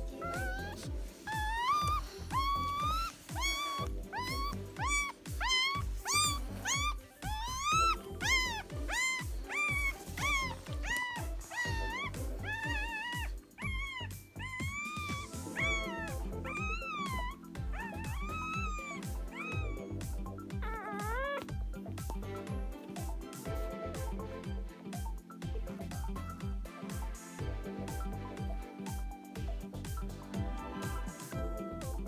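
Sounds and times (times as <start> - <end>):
background music with steady beat: 0.0 - 32.0
puppy crying in high squeals: 0.1 - 21.5.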